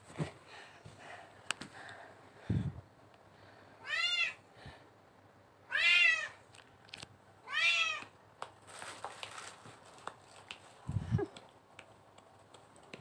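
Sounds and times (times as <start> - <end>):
cat meowing: 3.8 - 4.4, 5.7 - 6.4, 7.4 - 8.1.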